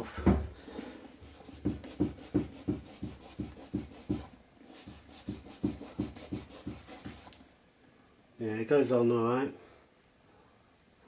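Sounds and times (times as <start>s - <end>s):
cloth rubbing leather boot: 1.2s - 7.4s.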